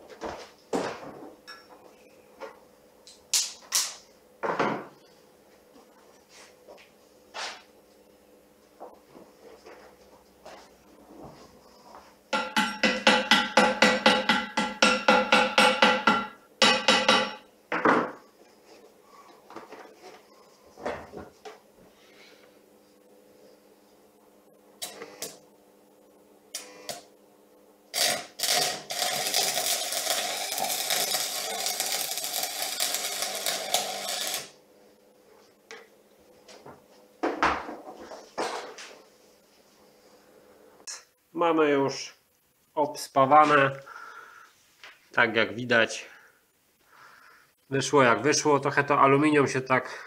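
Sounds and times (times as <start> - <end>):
hammer tapping on metal: 12.3 - 17.5
welding arc crackling hiss: 24.8 - 25.4, 26.5 - 27.1, 27.8 - 34.6.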